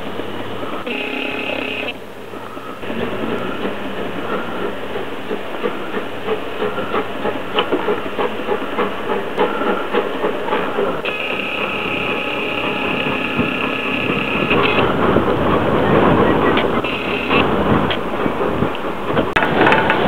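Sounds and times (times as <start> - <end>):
steam hissing: 0.0 - 20.0
steady high tone: 0.8 - 2.0, 11.1 - 15.0, 16.8 - 17.6.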